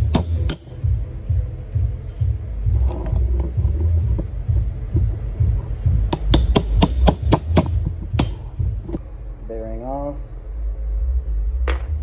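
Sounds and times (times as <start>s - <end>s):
hammer striking steel punch: 0.0s - 0.8s, 6.1s - 8.6s.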